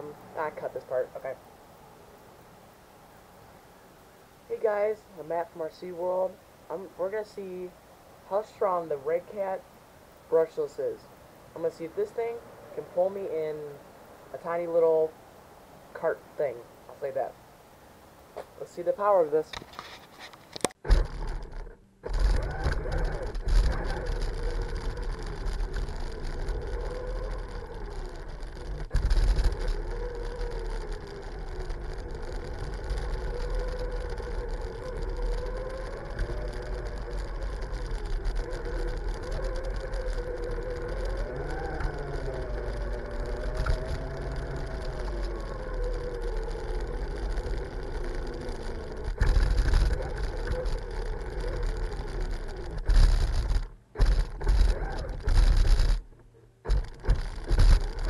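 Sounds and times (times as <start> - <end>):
wheels rumbling on pavement: 0.0 - 58.0
electric motor whining: 20.8 - 58.0.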